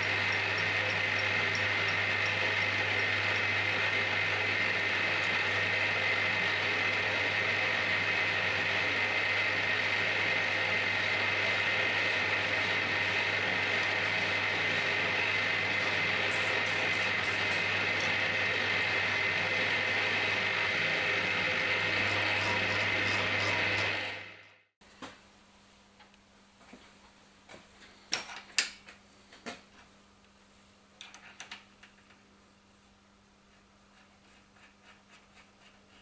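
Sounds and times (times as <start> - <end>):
high gear whine: 0.0 - 24.7
milling machine humming: 0.0 - 24.7.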